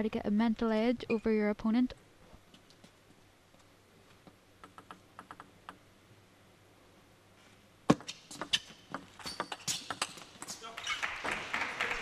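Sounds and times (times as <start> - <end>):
table tennis ball clicking: 4.6 - 5.8.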